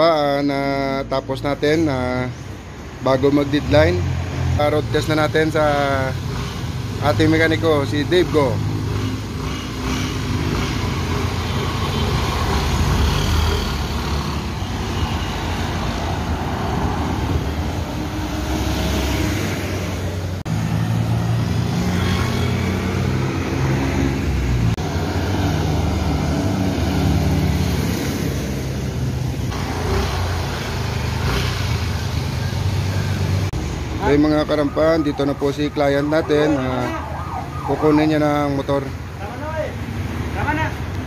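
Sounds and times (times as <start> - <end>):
road traffic passing: 0.0 - 41.0
scooter engine running: 8.2 - 14.9, 29.5 - 33.4.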